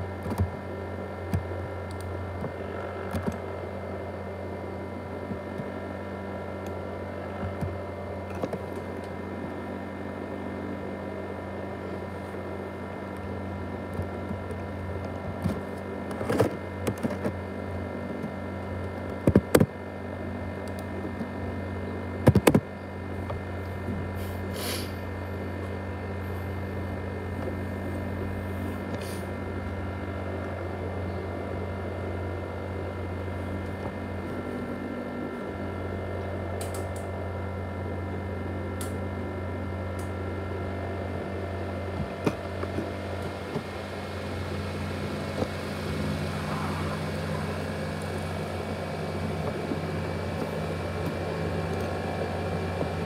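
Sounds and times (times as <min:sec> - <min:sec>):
laptop cooling fan whining: 0:00.0 - 0:53.0.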